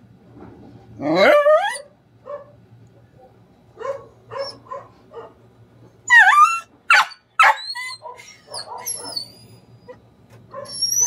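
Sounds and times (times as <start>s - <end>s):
dog howling yelp: 1.0s - 2.5s, 3.8s - 5.3s, 6.1s - 9.5s
dog whining and yipping: 1.2s - 1.9s, 3.9s - 4.8s, 6.1s - 11.0s
dog barking: 1.2s - 2.6s, 3.2s - 5.4s, 6.1s - 9.3s, 10.5s - 10.8s.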